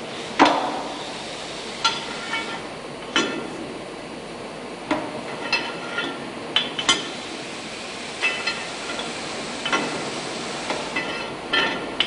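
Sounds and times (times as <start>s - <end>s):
steady hiss: 6.9s - 12.0s.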